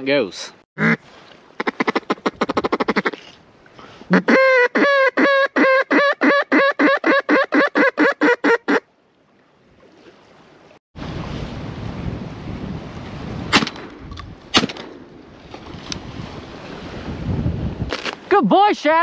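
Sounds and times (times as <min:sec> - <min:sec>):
duck quacks: 0:00.8 - 0:01.0
water lapping: 0:00.8 - 0:04.4, 0:07.7 - 0:11.5, 0:14.4 - 0:17.3
wind buffeting microphone: 0:11.0 - 0:18.0
shotgun shots: 0:13.5 - 0:15.0.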